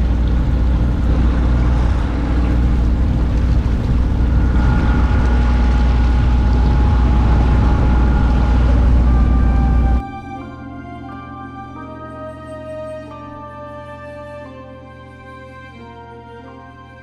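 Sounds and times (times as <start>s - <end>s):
wind noise: 0.0s - 10.2s
water wash: 0.0s - 12.0s
boat diesel engine humming: 0.0s - 17.0s.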